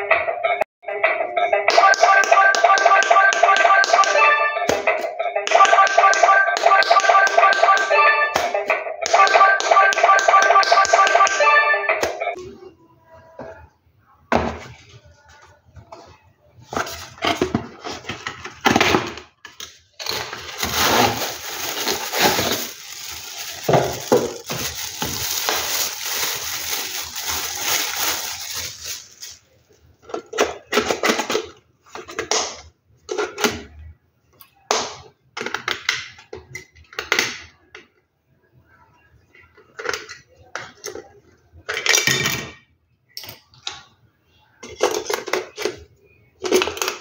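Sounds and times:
plastic bag crinkling: 20.0s - 29.4s.

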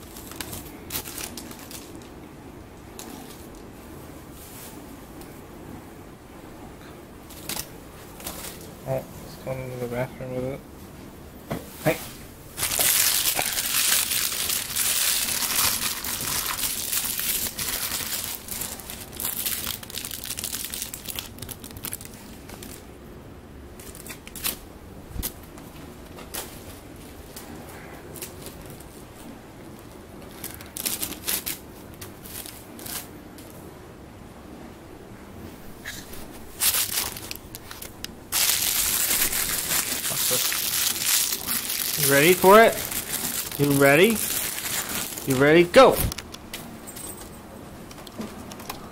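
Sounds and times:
plastic bag crinkling: 0.0s - 2.2s, 12.6s - 22.9s, 30.2s - 33.2s, 36.5s - 46.0s.

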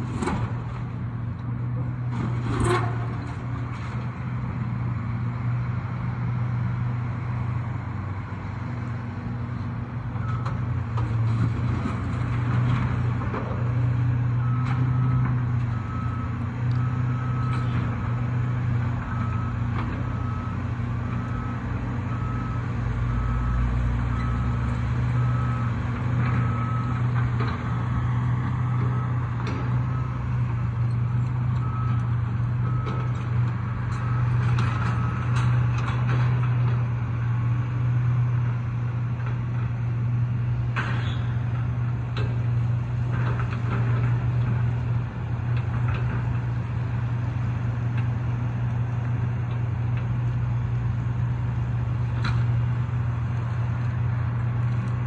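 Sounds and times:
excavator diesel engine running: 0.0s - 55.0s.

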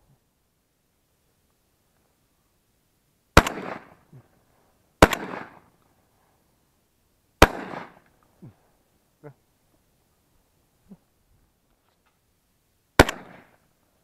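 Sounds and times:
shotgun shots with echo: 3.4s - 4.0s, 5.0s - 5.6s, 7.4s - 8.0s, 13.0s - 13.5s.

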